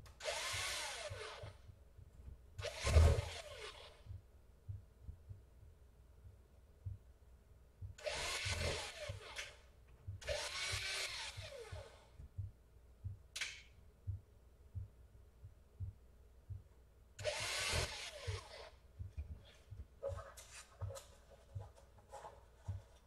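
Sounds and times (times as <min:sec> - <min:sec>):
cordless drill motor whirring: 0:00.2 - 0:01.6, 0:02.6 - 0:04.0, 0:08.0 - 0:09.6, 0:10.2 - 0:12.0, 0:17.2 - 0:18.8.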